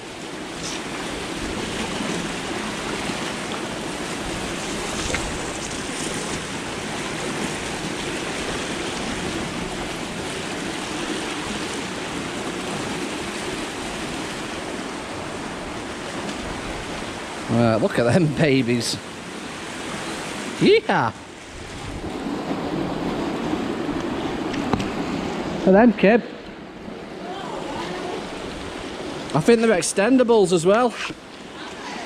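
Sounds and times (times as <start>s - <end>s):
white water rushing: 0.0s - 32.0s.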